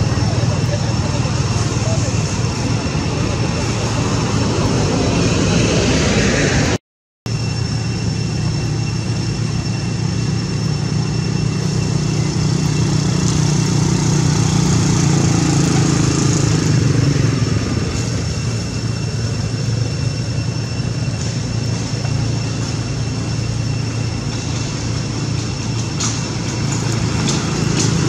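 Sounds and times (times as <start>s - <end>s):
thin steady high tone: 0.0s - 5.6s, 7.3s - 28.0s
motorbike engine running: 7.4s - 28.0s.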